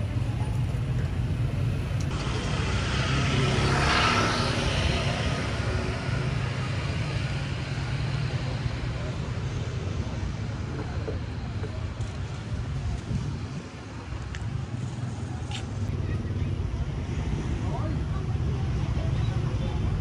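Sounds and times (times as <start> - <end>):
vehicle passing: 2.1 - 8.8.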